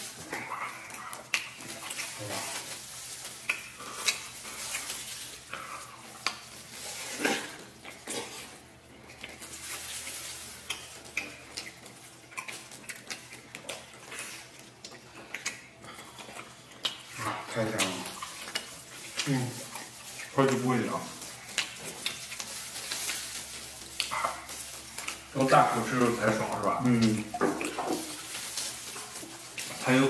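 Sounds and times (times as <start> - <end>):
wet chewing and smacking: 0.0 - 30.0
small clicks and rustles: 16.7 - 30.0.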